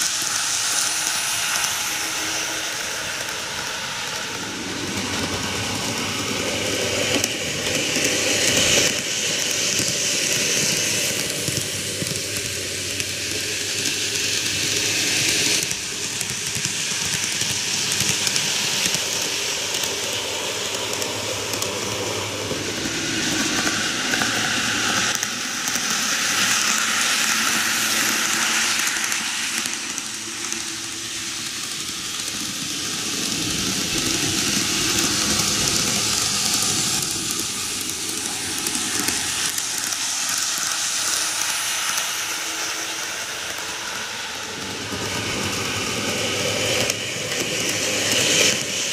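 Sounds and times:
model trains rumbling on rails: 0:00.0 - 0:48.9.

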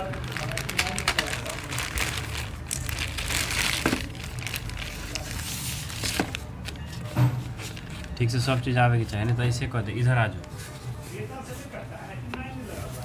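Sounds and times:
plastic bag crinkling and tearing: 0:00.0 - 0:06.5.

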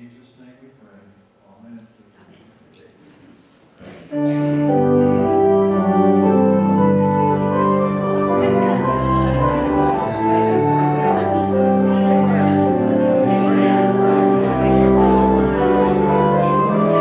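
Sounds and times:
church organ playing chords: 0:04.1 - 0:17.0.

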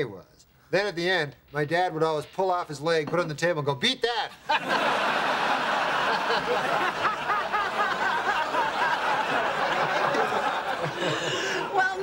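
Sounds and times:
studio audience laughing: 0:04.4 - 0:12.0.

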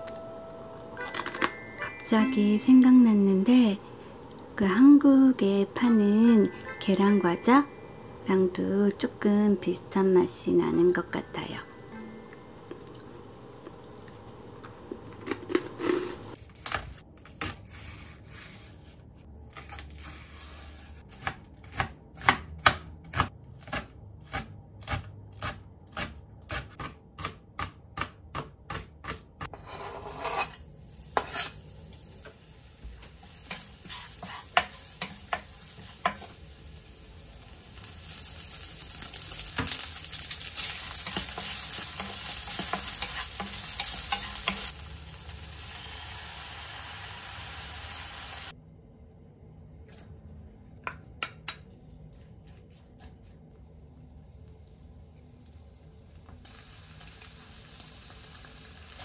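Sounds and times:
food sizzling in frying pan: 0:30.8 - 0:48.5, 0:56.4 - 0:59.0
wooden spatula stirring: 0:32.9 - 0:36.3, 0:40.6 - 0:44.7, 0:51.2 - 0:53.6.

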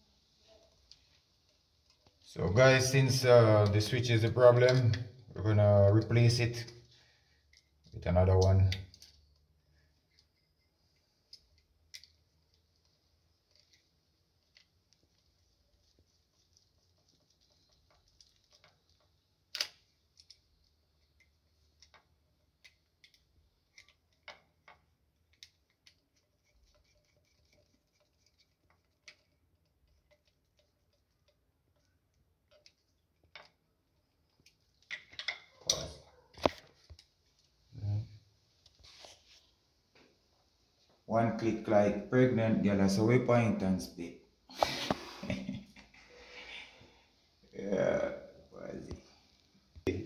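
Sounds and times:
screwdriver clicking and scraping: 0:10.0 - 0:15.3, 0:15.9 - 0:33.6.

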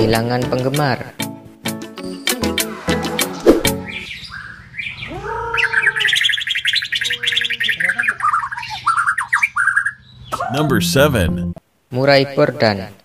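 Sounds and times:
bird singing rapid trills: 0:03.8 - 0:10.4.

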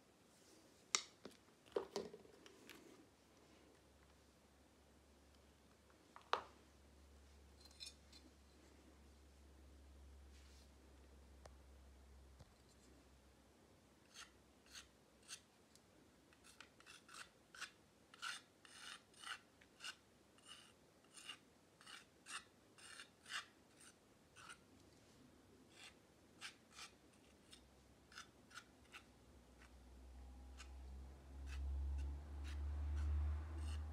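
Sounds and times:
palette knife scraping paint: 0:14.1 - 0:15.5, 0:16.3 - 0:24.7, 0:25.7 - 0:29.8, 0:30.5 - 0:33.9.

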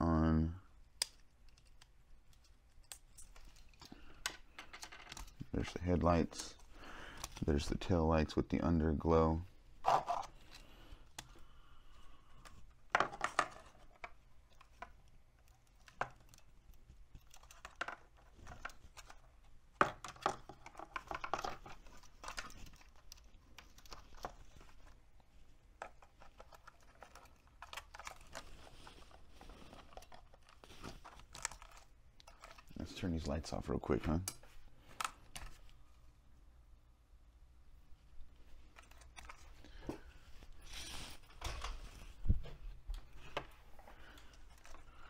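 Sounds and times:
plastic parts clicking and knocking: 0:00.9 - 0:07.5, 0:12.4 - 0:32.9.

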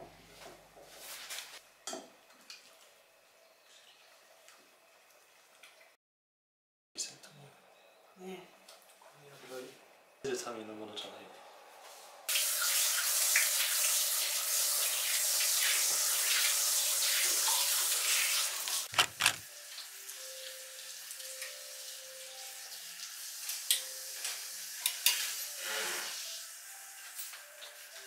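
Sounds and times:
water running from tap: 0:12.3 - 0:26.6.

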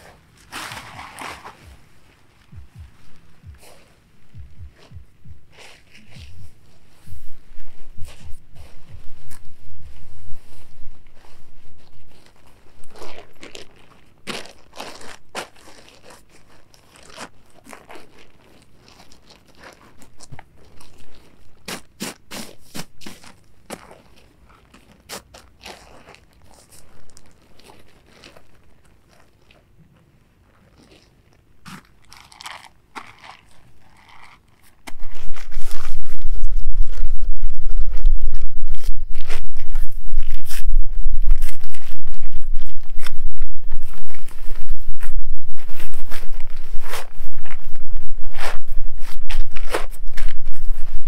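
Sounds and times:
crunching and rustling: 0:00.0 - 0:51.0
low rumble on microphone: 0:00.8 - 0:13.5, 0:34.9 - 0:51.0.

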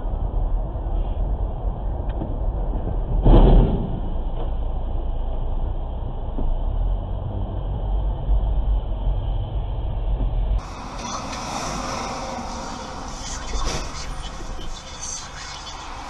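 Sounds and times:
car engine and road rumble: 0:00.0 - 0:16.0
sudden loud bang: 0:03.2 - 0:04.2.

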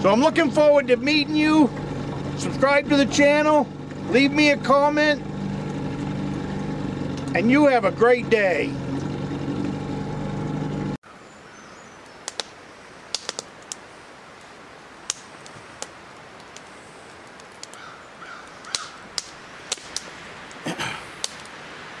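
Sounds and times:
outboard motor humming: 0:00.0 - 0:11.0.

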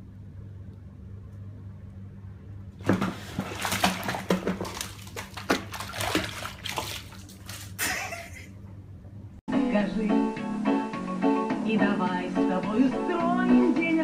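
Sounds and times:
kitten splashing in water: 0:02.8 - 0:08.5.

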